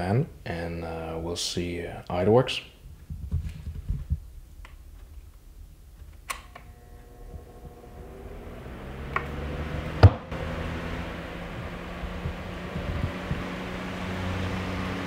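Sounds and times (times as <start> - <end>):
fan motor hum and air rush: 5.5 - 15.0
fan switch click: 6.1 - 7.8, 9.0 - 9.4
boom pole knocking door: 10.0 - 10.4.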